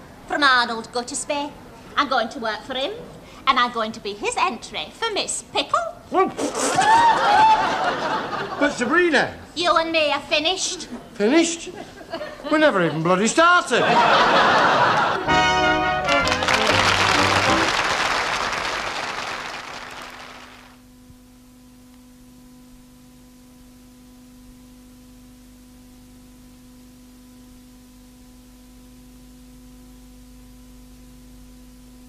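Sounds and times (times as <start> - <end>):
steady low hum: 13.8 - 32.0
studio audience applause: 14.8 - 20.8
theme music: 15.2 - 18.1.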